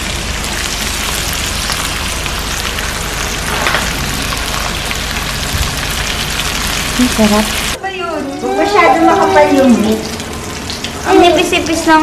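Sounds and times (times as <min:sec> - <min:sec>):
fat sizzling on a grill: 0:00.0 - 0:07.8.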